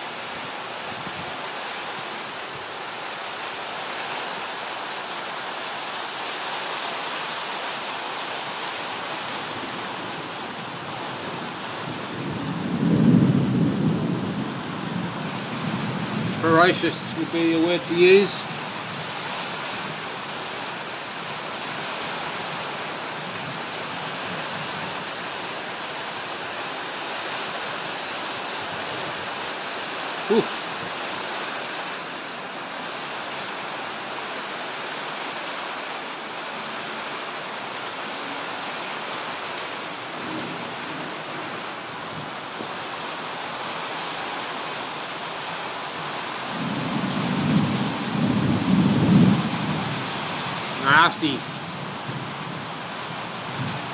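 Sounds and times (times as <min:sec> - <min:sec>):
rain falling: 0:00.0 - 0:53.9
thunder rumbling: 0:11.0 - 0:17.4, 0:46.5 - 0:50.8.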